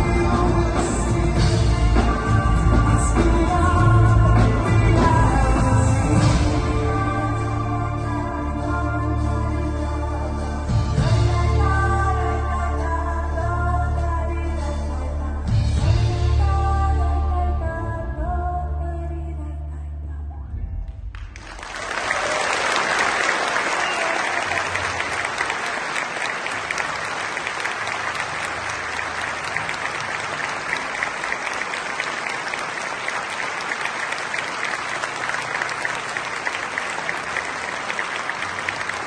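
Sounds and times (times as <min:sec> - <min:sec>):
audience applauding: 0:21.1 - 0:39.0.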